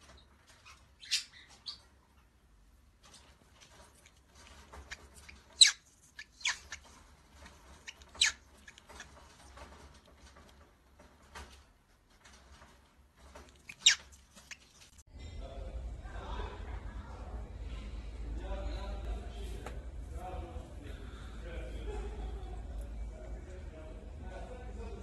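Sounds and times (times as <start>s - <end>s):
faint scratching and rustling: 0.0s - 15.1s
cockatiel chirping: 4.8s - 6.9s.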